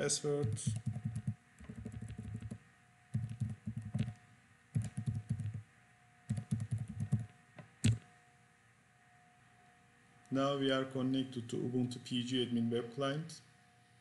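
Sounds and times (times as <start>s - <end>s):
faint steady hum: 0.0s - 14.0s
typing on computer keyboard: 0.4s - 2.6s, 3.2s - 4.2s, 4.8s - 5.6s, 6.3s - 7.3s.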